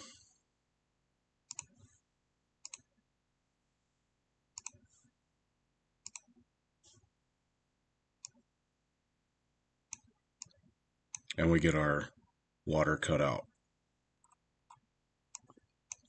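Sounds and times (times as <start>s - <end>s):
computer mouse clicks: 1.5s - 2.0s, 2.6s - 2.9s, 4.6s - 4.9s, 6.0s - 7.0s, 8.2s - 8.4s, 9.9s - 11.3s, 14.2s - 16.0s.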